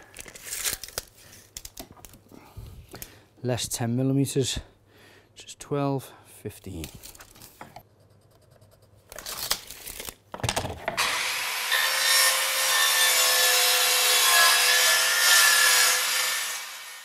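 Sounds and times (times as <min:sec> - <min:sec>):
mitre saw cutting plank: 0:11.0 - 0:17.0.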